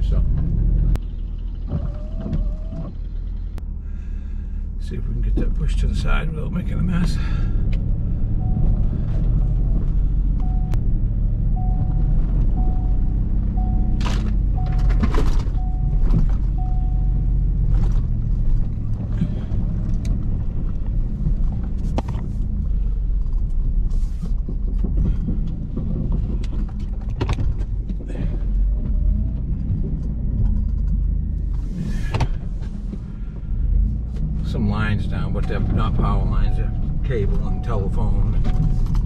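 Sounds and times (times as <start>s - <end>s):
vehicle engine rumbling: 0.0s - 39.0s
knocks and rattles: 14.0s - 16.7s, 17.6s - 33.1s
warning chime beeping: 14.6s - 17.3s, 36.3s - 38.8s.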